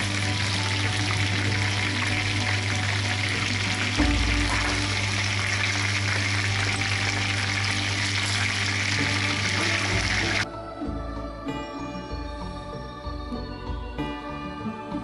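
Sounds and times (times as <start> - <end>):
chicken frying in hot oil: 0.0 - 10.4.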